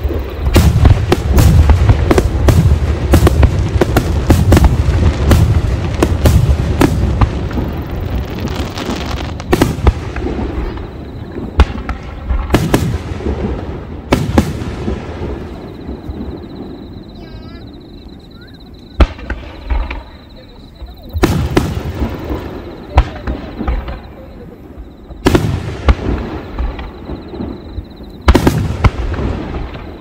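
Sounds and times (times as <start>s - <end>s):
crackle of sparkling stars: 7.4s - 9.5s.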